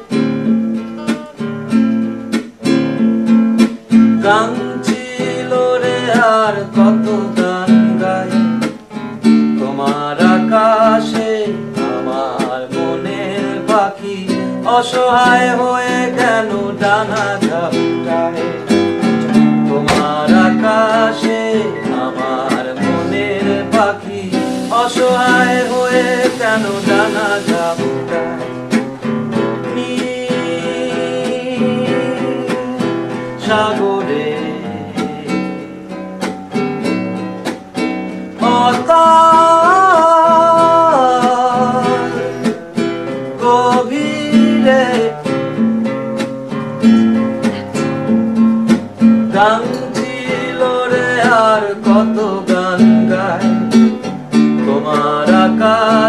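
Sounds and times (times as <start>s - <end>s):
strummed acoustic guitar: 0.0s - 56.0s
person singing: 4.0s - 35.7s, 38.3s - 45.5s, 49.0s - 56.0s.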